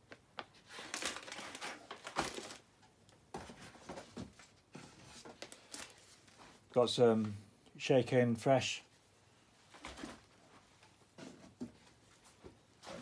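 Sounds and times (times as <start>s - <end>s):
plastic packets rustling and crinkling: 0.1s - 6.6s.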